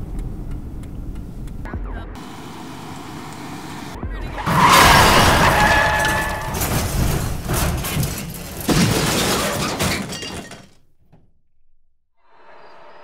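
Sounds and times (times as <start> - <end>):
glass shattering: 4.4 - 10.8
metal crashing: 4.4 - 11.0
debris clattering: 4.4 - 11.3.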